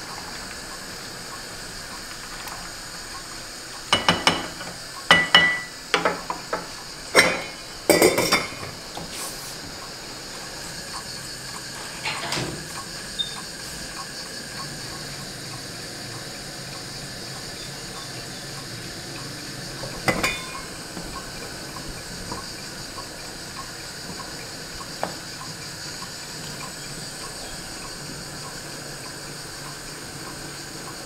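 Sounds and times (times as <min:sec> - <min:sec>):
gas burner flame hiss: 0:00.0 - 0:31.0
water boiling with hiss: 0:00.0 - 0:31.0
faint regular ticking: 0:00.1 - 0:07.1, 0:09.7 - 0:11.8, 0:12.7 - 0:31.0
metallic pot lid clank: 0:20.1 - 0:20.6.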